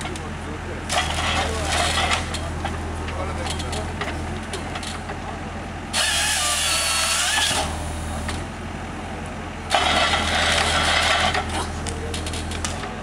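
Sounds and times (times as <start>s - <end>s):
excavator engine humming: 0.0s - 13.0s
forestry processor harsh bursts: 5.9s - 8.1s.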